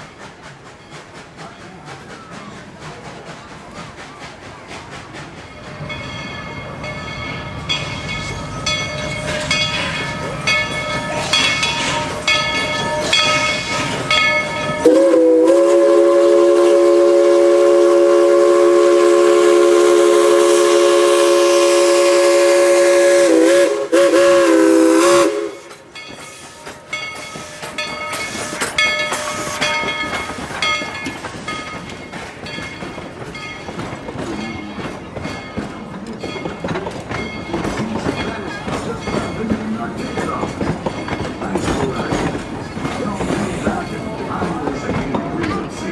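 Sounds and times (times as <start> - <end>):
train metallic clatter: 0.0 - 45.9
steam locomotive chime whistle: 5.6 - 32.0.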